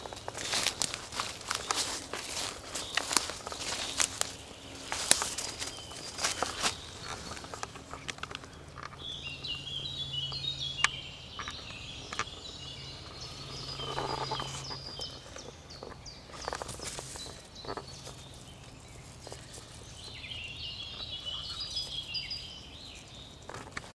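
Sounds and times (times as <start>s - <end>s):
rustling in dry leaves: 0.0s - 9.4s, 12.0s - 23.9s
songbird singing: 0.0s - 23.9s.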